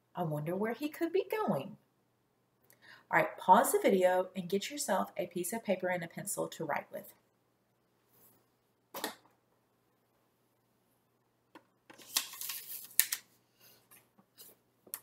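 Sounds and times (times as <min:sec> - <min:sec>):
paper cards rustling: 0:11.9 - 0:13.4.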